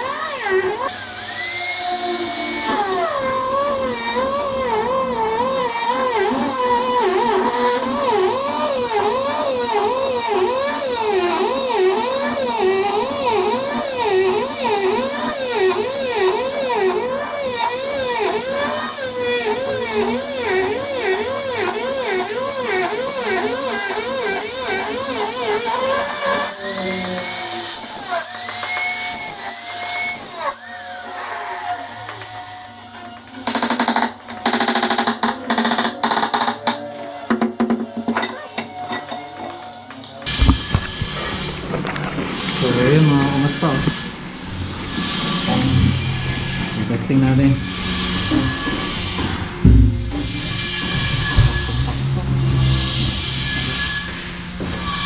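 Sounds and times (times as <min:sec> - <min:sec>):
angle grinder cutting stone: 0:00.0 - 0:33.8, 0:35.0 - 0:44.2.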